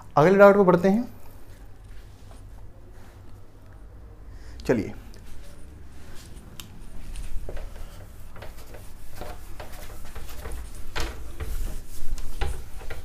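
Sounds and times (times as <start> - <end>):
duster rubbing whiteboard: 5.4 - 13.0.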